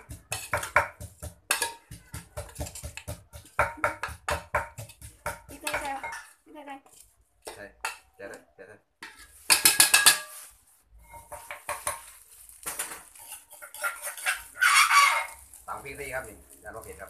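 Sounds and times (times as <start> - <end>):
metal spoon scraping a pot: 0.0 - 0.8, 1.5 - 3.6, 9.0 - 12.1, 13.0 - 15.7
plastic bags crinkling: 12.0 - 13.3, 15.3 - 17.0.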